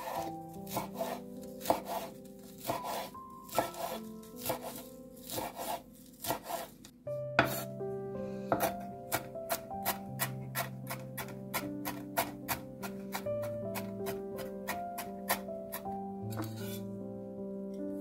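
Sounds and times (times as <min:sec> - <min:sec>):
knife chopping on wooden board: 0:00.0 - 0:06.8, 0:07.4 - 0:07.7, 0:08.5 - 0:16.8
background music: 0:00.0 - 0:18.0.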